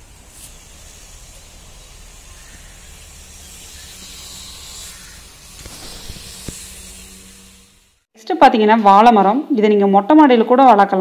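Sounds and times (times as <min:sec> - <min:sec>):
steady hissing: 0:00.0 - 0:08.1.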